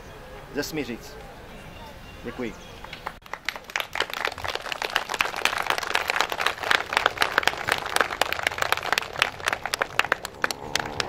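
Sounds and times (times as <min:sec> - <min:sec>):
small crowd applauding: 0:02.8 - 0:11.0.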